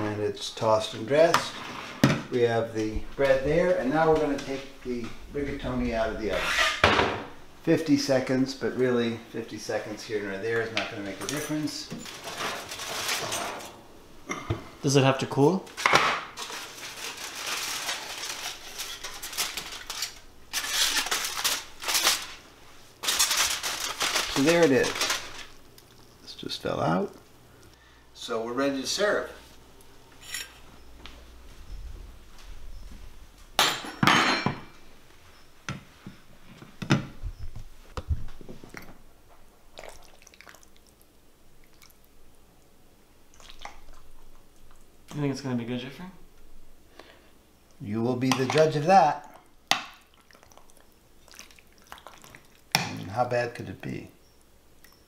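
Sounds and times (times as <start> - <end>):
aluminium foil crinkling: 11.0 - 13.7, 15.7 - 26.4.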